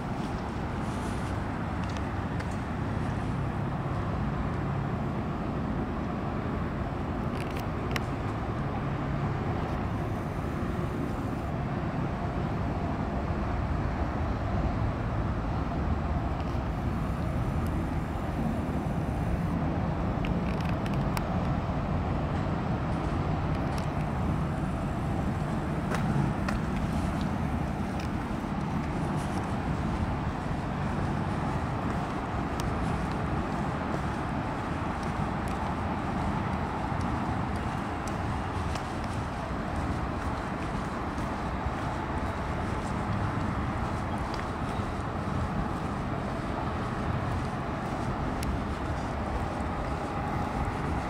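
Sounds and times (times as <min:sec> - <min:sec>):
distant traffic rumble: 0:00.0 - 0:51.0.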